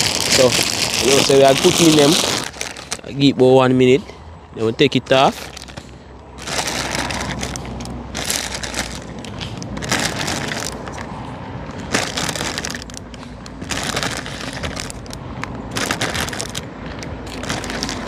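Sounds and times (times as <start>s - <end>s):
plastic packet crinkling: 0.0s - 3.3s, 5.3s - 11.1s, 11.7s - 18.0s.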